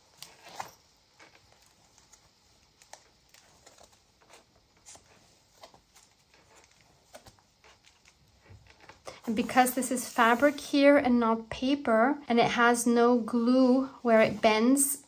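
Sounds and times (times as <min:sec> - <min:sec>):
paper pages turning: 0:00.1 - 0:10.7.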